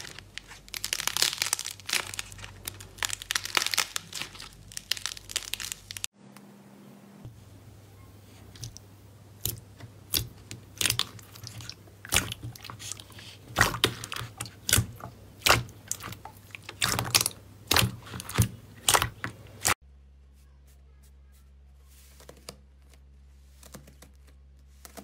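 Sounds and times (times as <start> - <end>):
slime squishing by hand: 0.0 - 6.1, 8.2 - 19.8.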